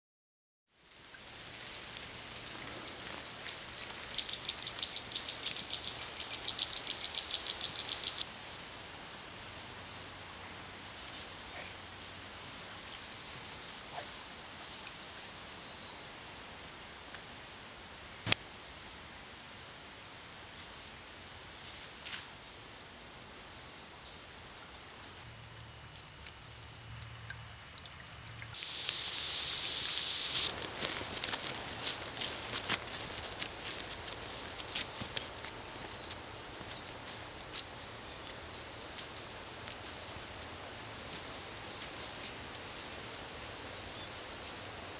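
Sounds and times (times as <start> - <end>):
steady background hiss: 0.8 - 44.9
loud hiss: 28.6 - 32.2
soft rustles and clicks: 29.8 - 44.6.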